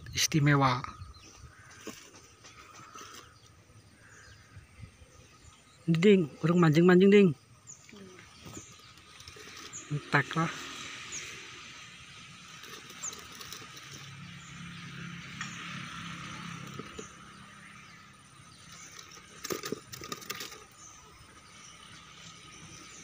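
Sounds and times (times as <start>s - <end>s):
sharp clicks and rattles: 8.4s - 22.4s.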